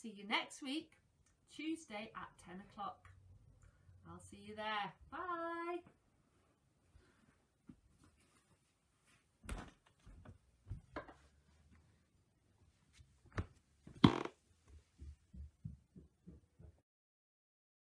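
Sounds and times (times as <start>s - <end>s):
faint room noise: 0.0s - 16.8s
knocks and thumps: 13.3s - 16.8s.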